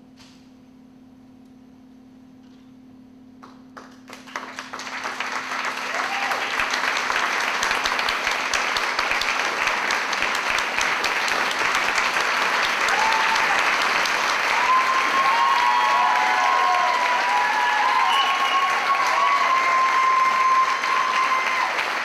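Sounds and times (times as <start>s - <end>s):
audience applauding: 3.4s - 22.0s
voices cheering: 5.7s - 7.9s, 12.4s - 22.0s.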